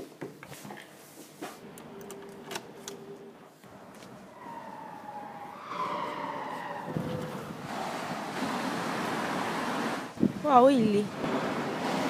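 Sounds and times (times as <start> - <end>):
siren wailing: 4.2 - 7.7.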